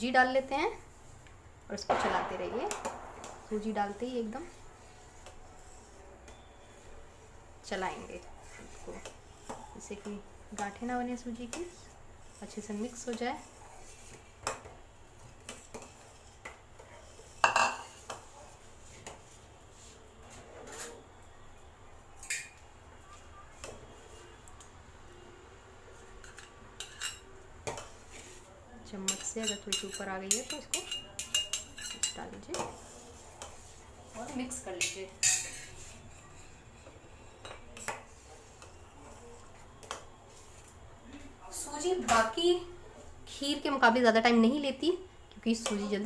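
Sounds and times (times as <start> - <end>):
spoon scraping pot: 29.0 - 40.6
spoon scraping steel pot: 29.1 - 33.8.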